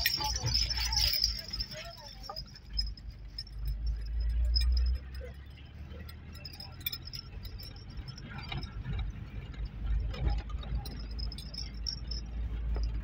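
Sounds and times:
loose items rattling: 0.0s - 4.7s
vehicle engine and road rumble: 0.0s - 13.0s.

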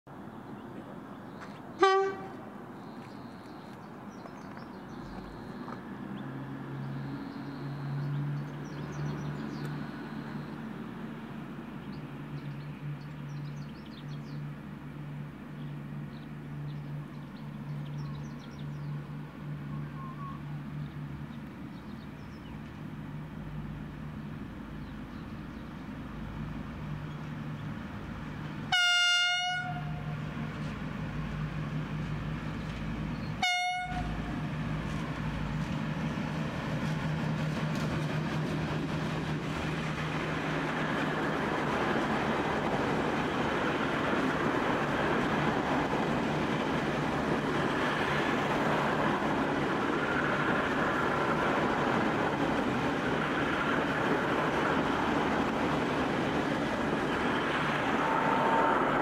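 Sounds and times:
train horn: 1.8s - 2.5s, 28.7s - 30.2s, 33.4s - 34.4s.

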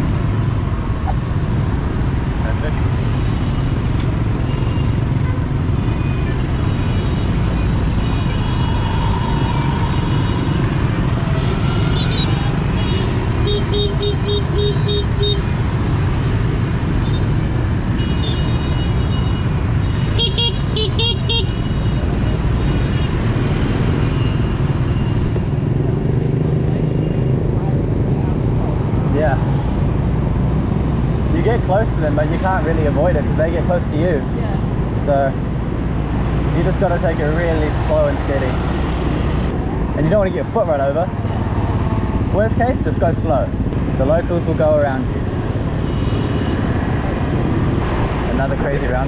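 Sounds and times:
motorbike traffic rumble: 0.0s - 49.0s
road and wind noise: 0.0s - 49.0s.

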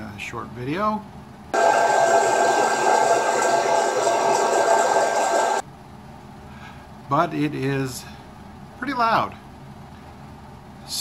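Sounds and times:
coffee roaster fan whirring: 1.5s - 8.1s.

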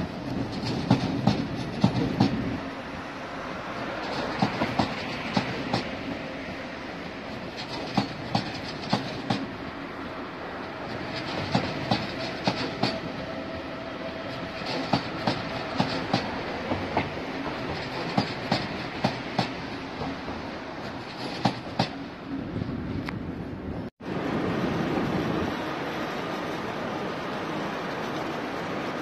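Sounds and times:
train rumble: 0.0s - 29.0s
train wheels clacking over points: 0.2s - 2.5s, 3.8s - 6.0s, 7.4s - 9.5s, 10.8s - 13.2s, 14.2s - 22.0s.

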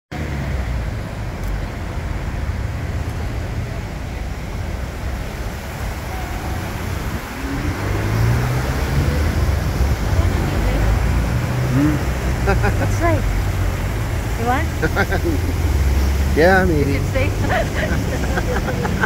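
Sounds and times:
road traffic rumble: 0.1s - 19.0s
engine note rising: 5.8s - 19.0s.

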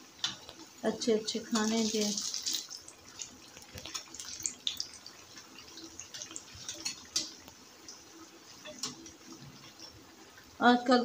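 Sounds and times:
fritters sizzling in hot oil: 0.0s - 11.0s
metal tongs clicking on pan: 6.7s - 7.4s.

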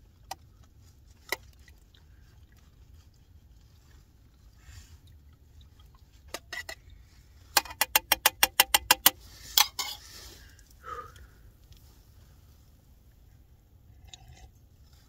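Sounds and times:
spoon clinking in metal mug: 8.6s - 10.0s.

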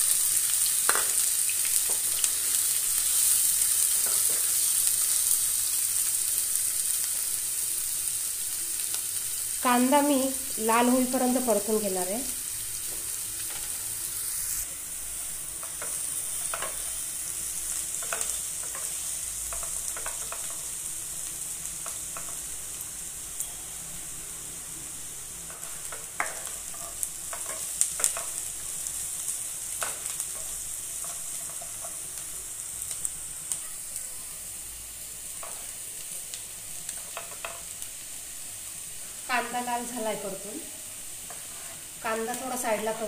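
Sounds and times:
onions sizzling in hot oil: 0.0s - 43.0s
spatula scraping and knocking pan: 17.8s - 20.6s, 25.5s - 28.7s.

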